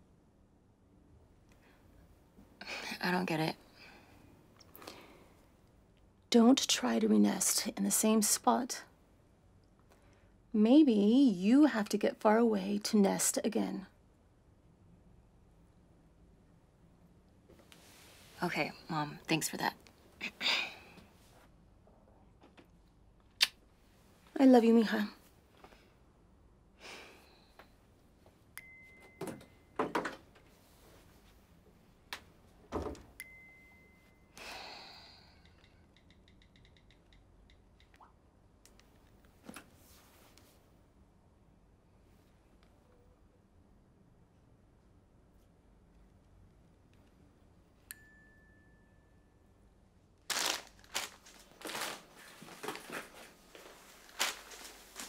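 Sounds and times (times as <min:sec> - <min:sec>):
woman breathing and sighing: 0:20.2 - 0:21.2, 0:34.3 - 0:35.7
rummaging on kitchen counter: 0:50.3 - 0:55.0.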